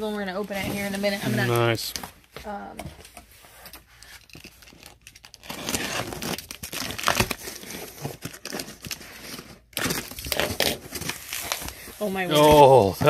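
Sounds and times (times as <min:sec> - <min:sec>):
cardboard packaging crinkling: 0:03.9 - 0:13.0.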